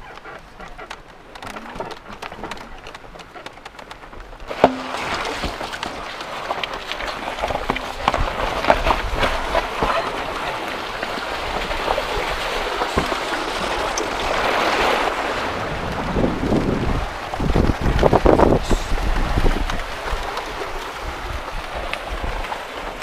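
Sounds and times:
cart jolting over rough track: 0:01.4 - 0:15.2.

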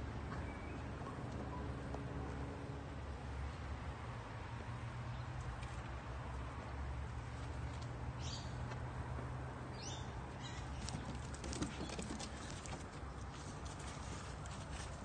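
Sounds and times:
puppy claws pattering on decking: 0:10.8 - 0:14.9.

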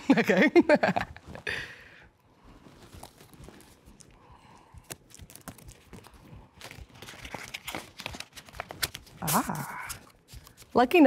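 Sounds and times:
paper envelope rustling: 0:02.6 - 0:10.8.

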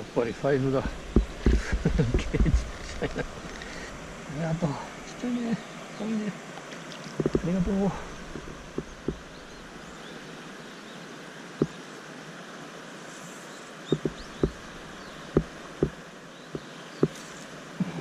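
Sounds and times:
river rushing: 0:00.0 - 0:18.0
short dull knocks: 0:00.8 - 0:02.6, 0:07.2 - 0:09.3, 0:13.9 - 0:16.0.

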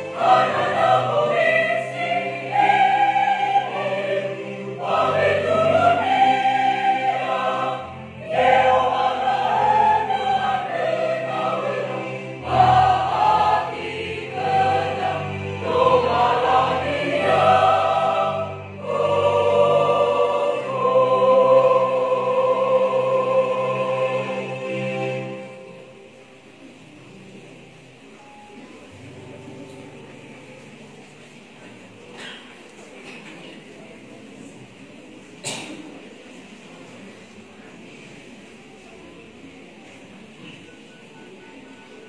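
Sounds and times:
choir singing: 0:00.0 - 0:26.9.

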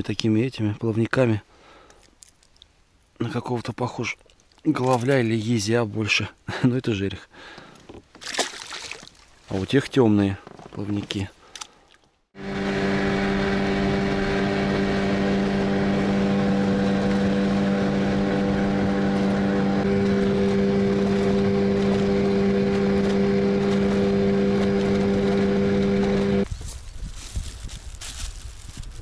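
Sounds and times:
outboard motor humming: 0:12.4 - 0:26.5.

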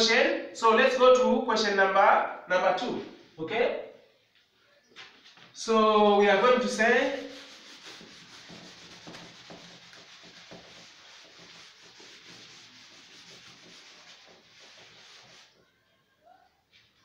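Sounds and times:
duster rubbing on blackboard: 0:06.4 - 0:15.8.

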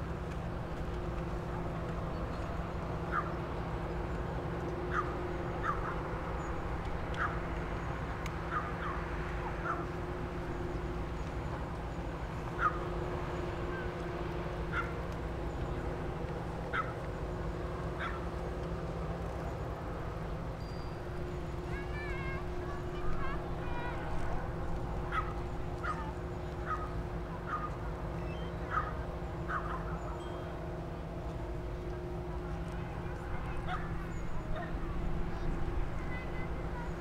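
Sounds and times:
ship engine droning hum: 0:00.0 - 0:37.0
birds calling: 0:12.5 - 0:14.0.

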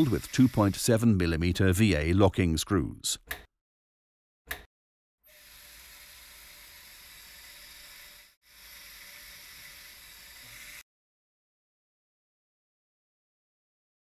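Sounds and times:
surgical power drill drilling: 0:00.0 - 0:00.8, 0:05.3 - 0:10.8.

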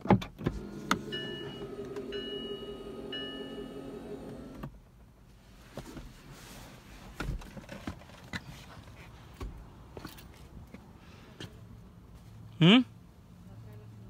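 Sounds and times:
car electric window motor whining: 0:00.4 - 0:04.7.

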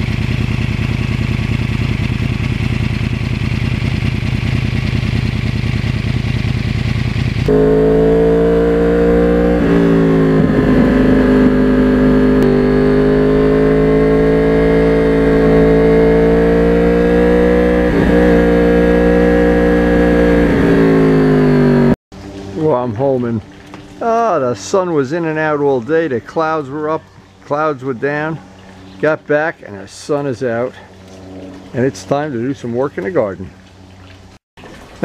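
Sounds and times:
motorcycle engine: 0:00.0 - 0:22.7.

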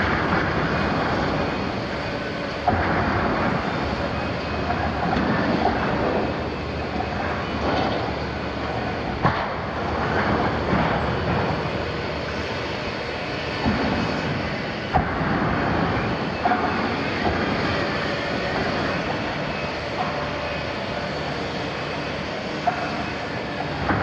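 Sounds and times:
excavator diesel engine running: 0:00.0 - 0:24.0.

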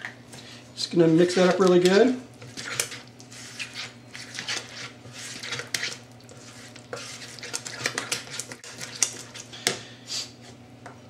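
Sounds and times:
spatula scraping batter in plastic bowl: 0:00.9 - 0:09.5.

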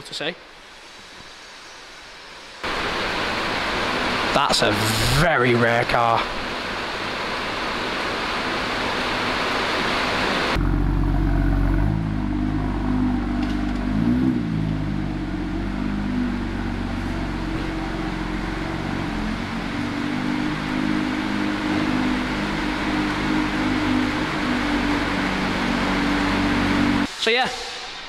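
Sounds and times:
steady rushing hiss: 0:00.0 - 0:10.6, 0:15.8 - 0:28.0
car engine running at low revs: 0:02.7 - 0:27.1
engine rev blip: 0:10.6 - 0:27.1.

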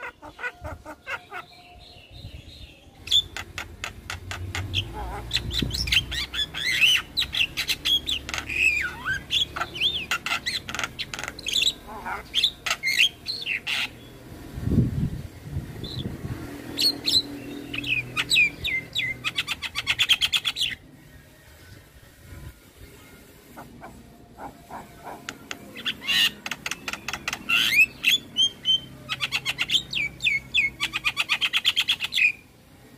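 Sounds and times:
myna bird singing: 0:00.0 - 0:14.3, 0:15.0 - 0:20.9, 0:23.5 - 0:32.5
bird singing clicks and chirps: 0:24.7 - 0:27.9.

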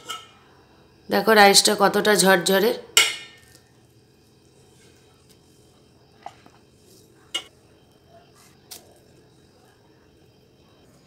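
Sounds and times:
spoon clinking against pot: 0:03.0 - 0:03.4, 0:07.3 - 0:07.5.

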